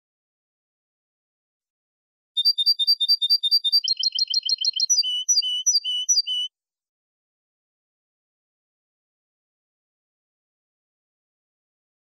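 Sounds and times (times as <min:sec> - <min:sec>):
goldfinch song: 0:02.4 - 0:06.5.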